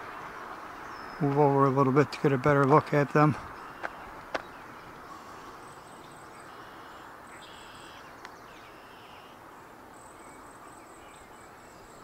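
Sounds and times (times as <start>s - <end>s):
low background hiss: 0.0s - 12.0s
insects trilling: 3.4s - 12.0s.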